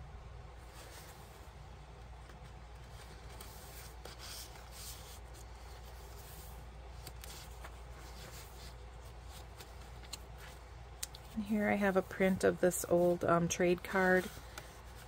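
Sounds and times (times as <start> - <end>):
low steady hum: 0.0 - 15.0
paper rustling: 0.6 - 13.0, 13.7 - 15.0
page turning: 0.7 - 11.4.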